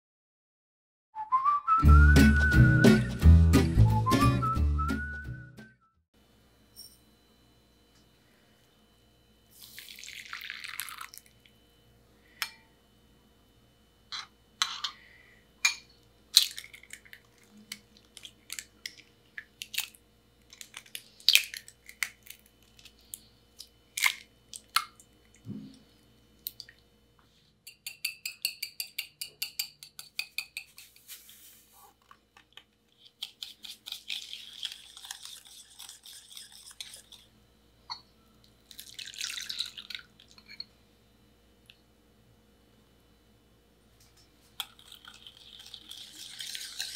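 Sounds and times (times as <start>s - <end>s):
eggs cracking against glass bowl: 15.7s - 25.4s, 32.3s - 37.3s, 44.6s - 46.9s
egg whites dripping: 32.4s - 37.2s, 44.6s - 46.9s.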